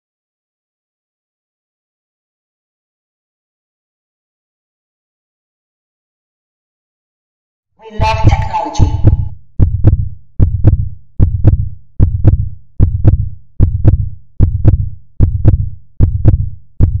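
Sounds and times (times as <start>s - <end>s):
heartbeat thumps: 8.0s - 17.0s.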